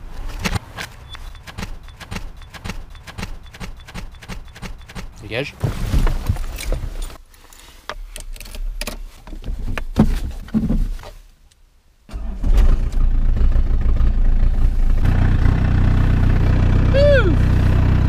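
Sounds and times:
diesel engine starting and idling: 12.1 - 18.0.

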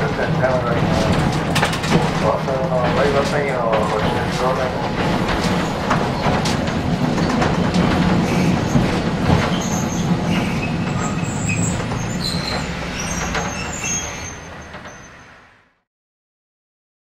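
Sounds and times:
wheels clicking over track: 0.0 - 15.2
tram rumbling on rails: 0.0 - 15.8
high wheel squeals: 8.2 - 15.6.

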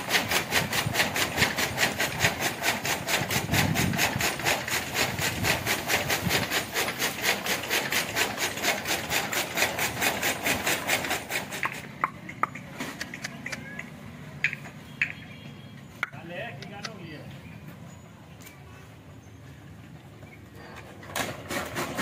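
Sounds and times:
chaff cutter rasping clatter: 0.0 - 14.6, 20.6 - 22.0.

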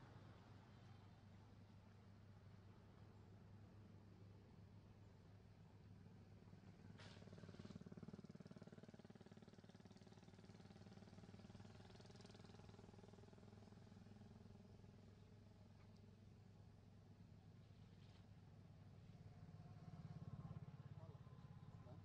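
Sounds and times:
faint engine drone: 5.0 - 22.0.

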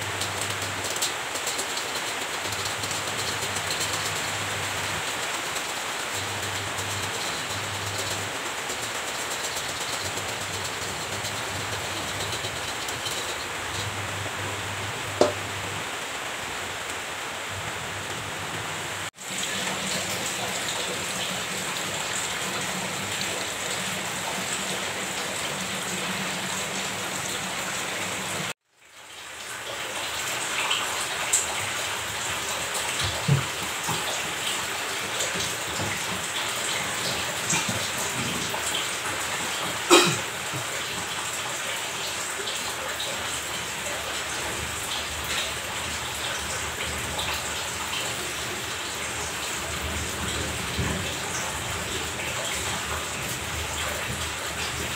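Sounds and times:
water gushing onto tiled floor: 0.0 - 54.9
knocks at washing machine: 15.2 - 15.5, 32.9 - 34.3, 35.2 - 38.8.

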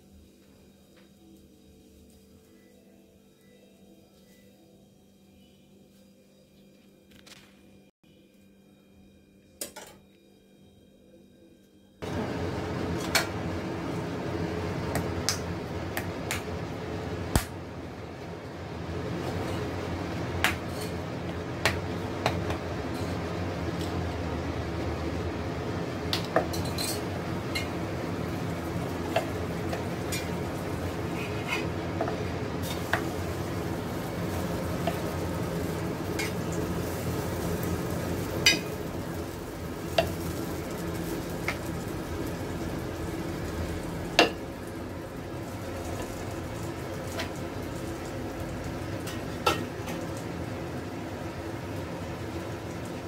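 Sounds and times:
steady background noise: 11.9 - 53.0.

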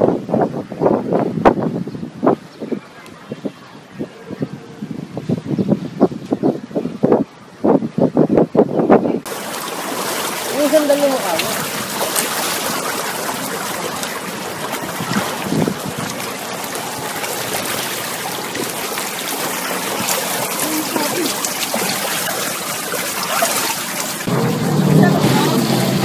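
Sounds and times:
floodwater rushing and sloshing: 9.2 - 26.0.

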